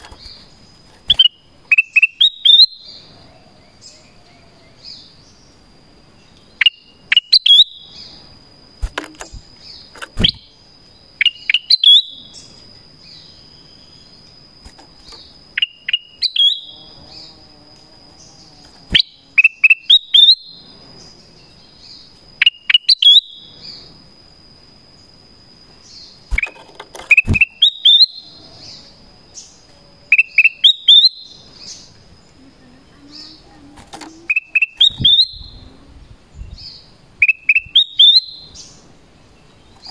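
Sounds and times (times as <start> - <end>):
bird whistled calls: 1.1 - 3.0, 11.2 - 12.5, 27.1 - 28.8, 30.1 - 31.8, 34.2 - 35.6, 36.6 - 38.8.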